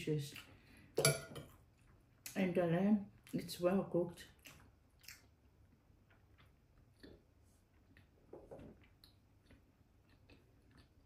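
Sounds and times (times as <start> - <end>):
metal spoon clinking on ceramic: 1.0 - 1.5.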